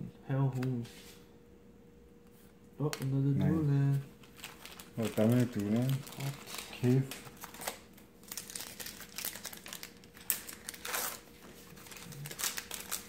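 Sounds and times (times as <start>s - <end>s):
foil wrappers crinkling: 4.1s - 13.0s.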